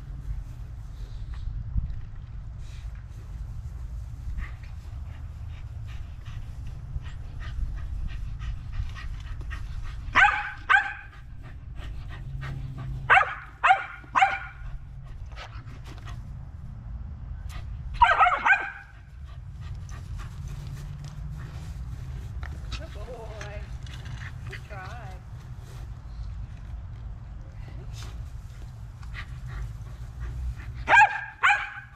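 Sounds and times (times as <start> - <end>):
dog barking: 10.2 - 11.1, 13.1 - 14.6, 18.0 - 18.9, 30.9 - 31.9.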